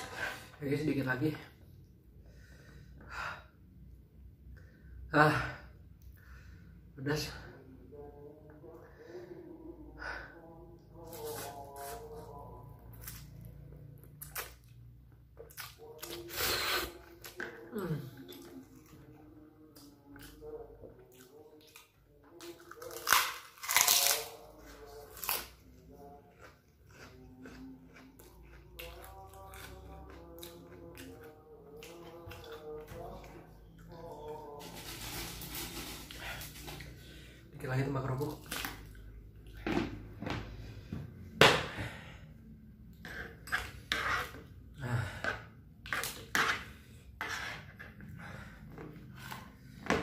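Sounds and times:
crackers crunching as chewed: 21.1s - 25.7s, 26.3s - 33.2s
cracker crunching in mouth: 22.5s - 25.6s.

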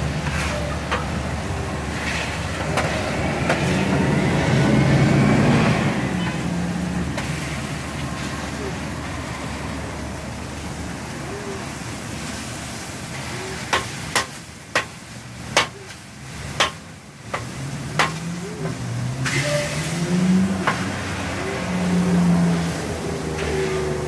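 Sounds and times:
food sizzling on a griddle: 0.0s - 24.0s
metal spatula clacking on griddle: 13.7s - 19.4s.

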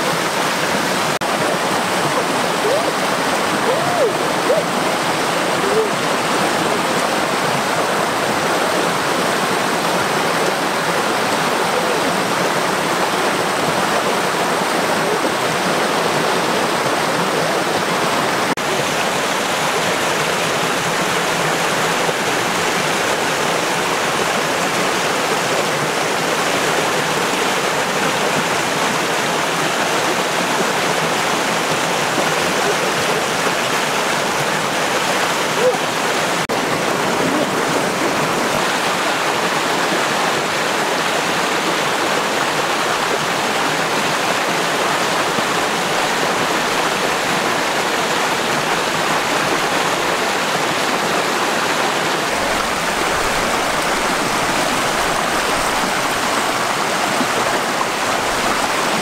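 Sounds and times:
running water: 0.0s - 59.0s.

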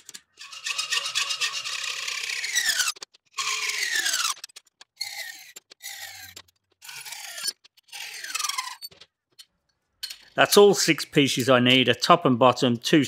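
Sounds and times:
hacksaw cutting metal: 0.0s - 8.9s.

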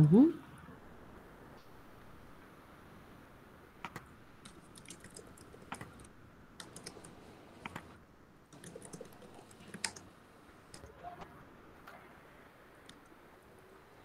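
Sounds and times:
keyboard and mouse clicking: 3.8s - 7.9s, 8.5s - 10.1s.

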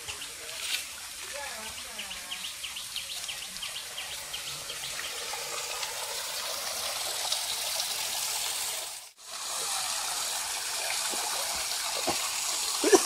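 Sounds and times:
water splashing into stone trough: 9.4s - 13.0s.

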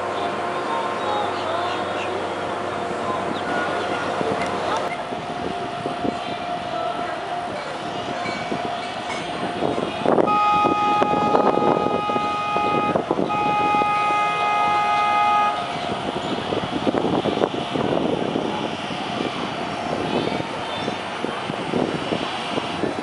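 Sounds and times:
boat horn blasts: 9.4s - 16.4s.

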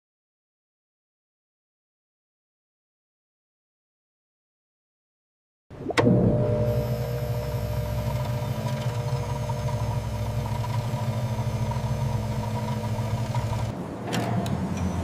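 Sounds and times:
stirrer motor humming: 5.7s - 13.7s.

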